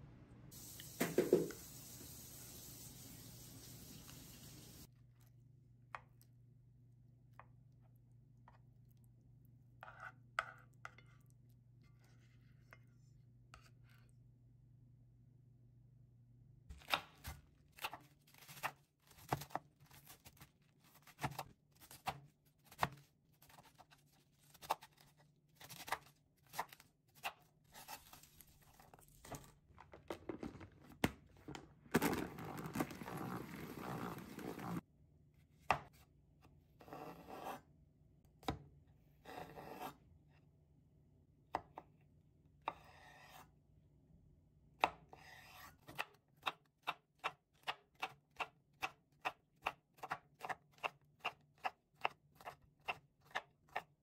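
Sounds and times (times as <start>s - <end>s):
knife chopping on cutting board: 16.7s - 23.9s, 35.6s - 36.0s, 39.2s - 40.0s.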